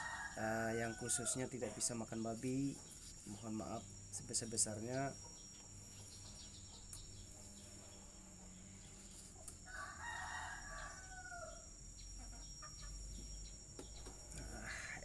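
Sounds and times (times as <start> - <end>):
rooster crowing: 0.0 - 2.2, 9.6 - 11.8.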